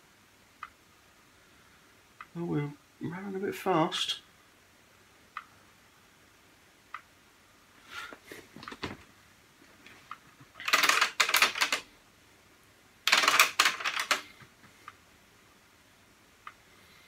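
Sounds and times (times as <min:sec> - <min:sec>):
rapid clicking and clattering: 0:10.5 - 0:11.8, 0:13.1 - 0:14.3.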